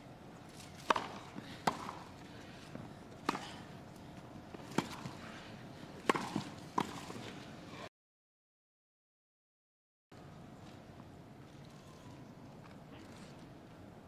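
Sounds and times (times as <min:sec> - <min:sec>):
tennis racket hitting ball: 0:00.8 - 0:02.1, 0:03.2 - 0:03.7, 0:04.6 - 0:05.4, 0:06.0 - 0:07.2.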